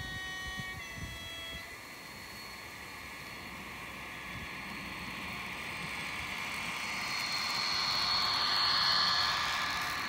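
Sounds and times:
model train whine and rolling: 0.0 - 10.0.

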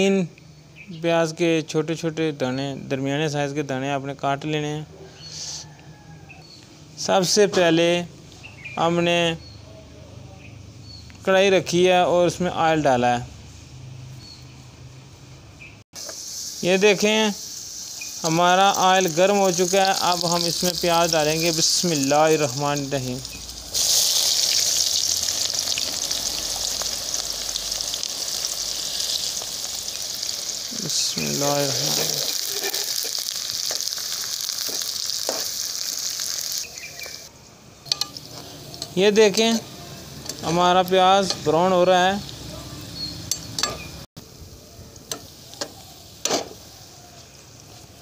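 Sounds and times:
onions sizzling in oil: 16.0 - 37.3, 37.9 - 48.0
metal spoon scraping a pan: 31.6 - 34.0, 34.6 - 35.6, 45.1 - 46.7.

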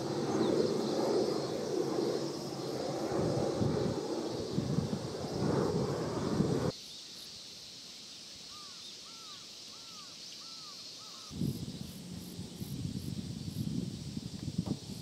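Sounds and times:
jet passing overhead: 0.0 - 6.7
low rushing noise: 0.0 - 6.7.

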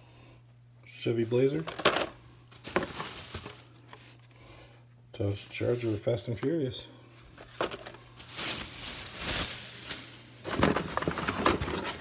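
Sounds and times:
card and plastic rustling: 1.3 - 4.4, 5.5 - 12.0
plastic packs clicking and clacking: 1.6 - 4.0, 7.4 - 12.0.

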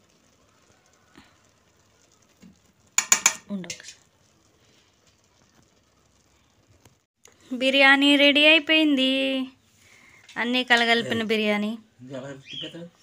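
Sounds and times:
spoon clinking on metal pot: 3.0 - 3.8.

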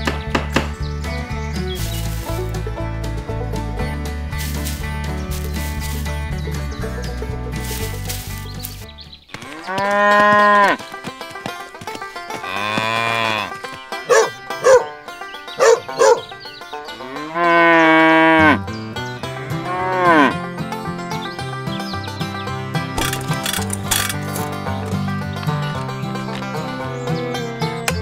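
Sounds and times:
quiet background music: 0.0 - 28.0
cattle mooing: 9.3 - 10.8, 12.3 - 14.3, 17.0 - 18.6, 19.4 - 20.4.

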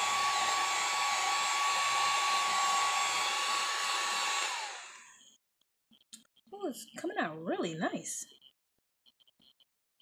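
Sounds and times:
heat gun blowing hot air: 0.0 - 5.2
heat gun whine: 0.0 - 5.3.

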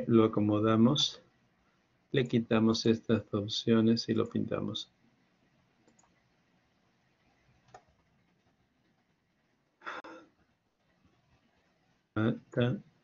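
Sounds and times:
man's voice: 2.2 - 4.8, 12.2 - 12.8
faint click: 5.8 - 6.2.

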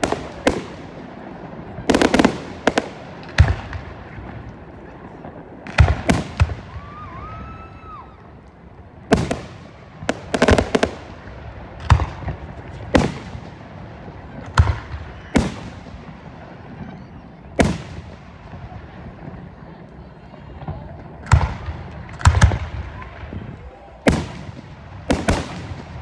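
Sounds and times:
fireworks bursting with bangs: 0.0 - 26.0.

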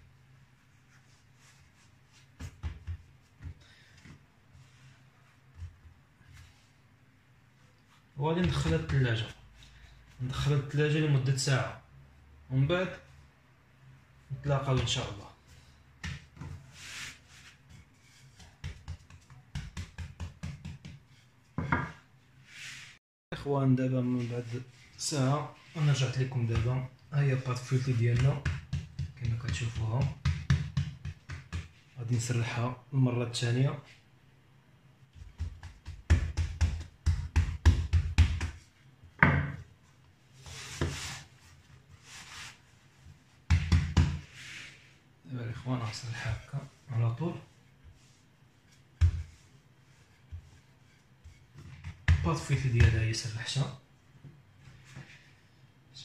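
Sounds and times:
hands rustling on dough: 14.6 - 23.0, 35.1 - 53.2
rolling pin knocking on dough: 16.0 - 16.6, 17.7 - 22.0, 27.8 - 31.8, 35.2 - 39.6, 43.5 - 44.3, 49.0 - 49.4, 51.2 - 53.0
rolling pin knock on countertop: 21.6 - 22.0, 28.1 - 31.8, 39.2 - 39.6, 43.5 - 44.2.

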